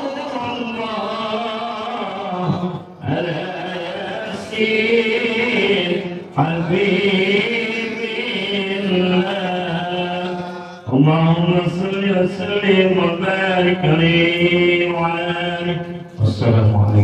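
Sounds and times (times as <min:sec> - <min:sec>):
man reciting melodically: 0:00.0 - 0:17.0.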